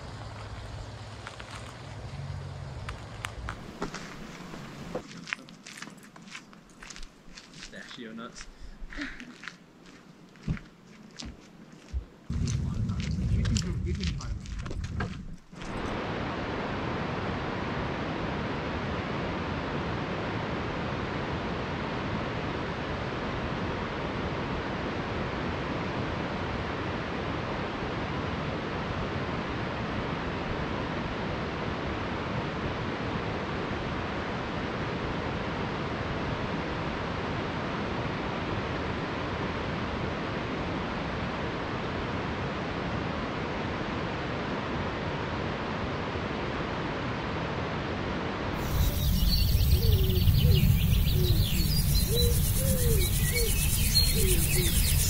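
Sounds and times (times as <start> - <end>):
steady wind-like rushing noise: 11.9 - 55.0.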